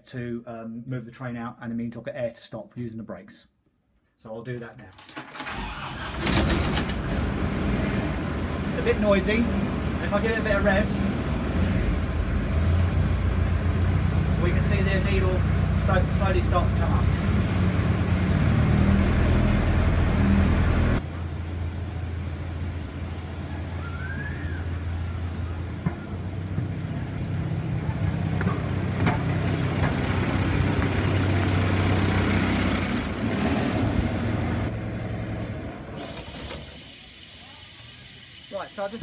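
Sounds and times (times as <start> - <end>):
diesel locomotive engine running: 5.7 - 37.0
steady hiss: 36.0 - 39.0.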